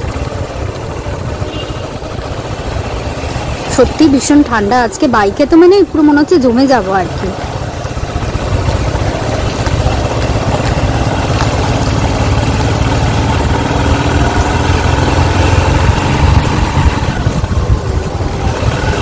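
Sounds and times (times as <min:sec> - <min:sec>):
motorbike engine running: 0:00.0 - 0:19.0
wind rushing on microphone: 0:14.1 - 0:19.0.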